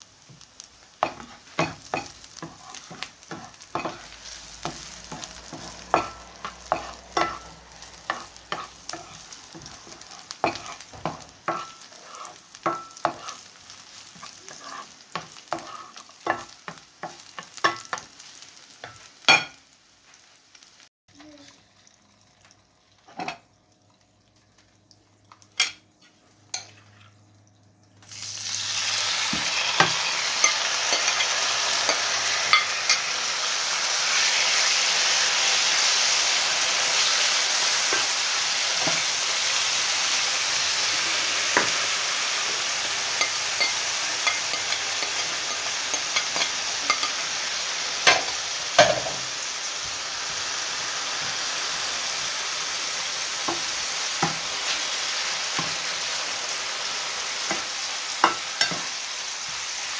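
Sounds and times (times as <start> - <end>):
chicken sizzling in hot oil: 0.0 - 59.9
spatula knocking on frying pan: 1.0 - 4.0, 4.6 - 7.4
spatula stirring chicken: 1.0 - 7.5, 8.1 - 18.1.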